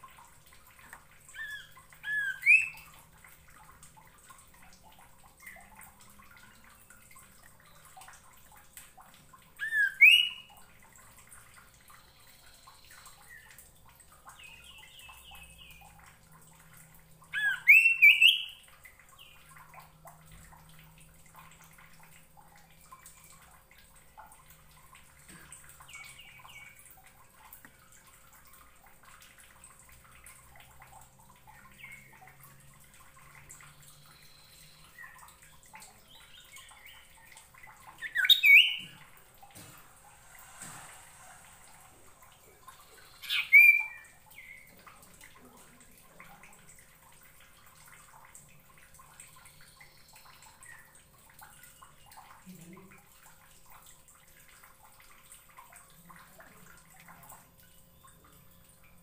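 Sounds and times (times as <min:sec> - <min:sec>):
faint soft bird chirps: 0:01.3 - 0:03.0, 0:09.6 - 0:10.6, 0:11.7 - 0:13.6, 0:17.3 - 0:19.5, 0:33.6 - 0:39.1, 0:40.0 - 0:44.8, 0:49.4 - 0:51.0.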